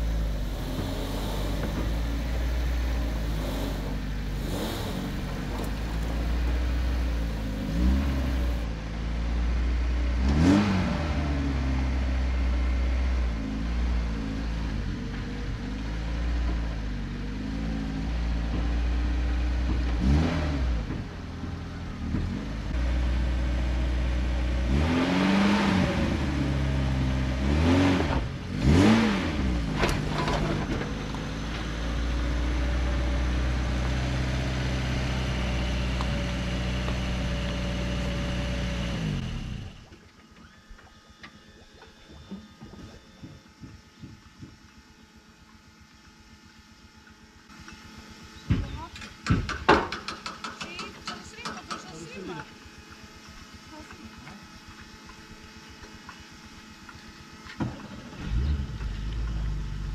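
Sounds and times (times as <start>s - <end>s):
car engine revving: 0.0s - 8.7s, 10.1s - 12.4s, 19.4s - 39.8s.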